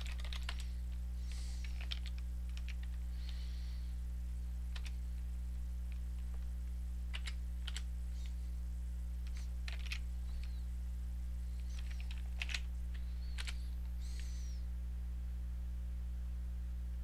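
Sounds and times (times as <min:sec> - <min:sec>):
keyboard keystrokes: 0:00.0 - 0:00.7, 0:01.6 - 0:03.0, 0:04.7 - 0:05.0, 0:07.1 - 0:08.3, 0:09.2 - 0:10.5, 0:11.6 - 0:13.6
low electrical hum: 0:00.0 - 0:17.0.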